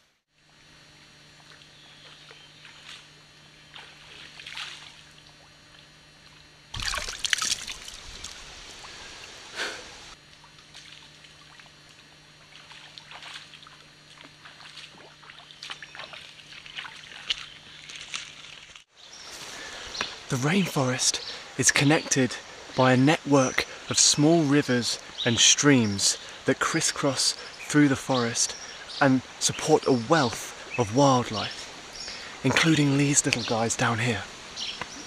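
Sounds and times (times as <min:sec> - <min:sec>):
footsteps splashing in stream: 0:01.4 - 0:05.9, 0:06.7 - 0:09.4, 0:10.3 - 0:20.3.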